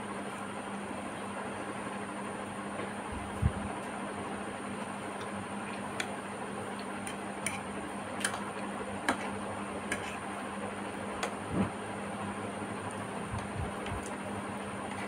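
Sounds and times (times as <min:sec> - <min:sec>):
steady hiss and low hum: 0:00.0 - 0:15.0.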